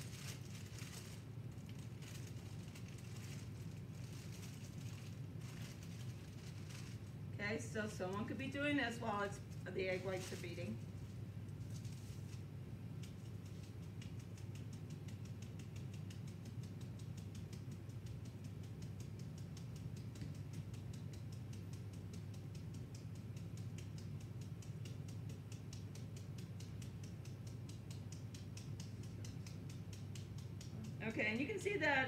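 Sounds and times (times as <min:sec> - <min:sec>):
low steady hum: 0:00.0 - 0:32.0
flour sifter clicking: 0:12.9 - 0:31.4.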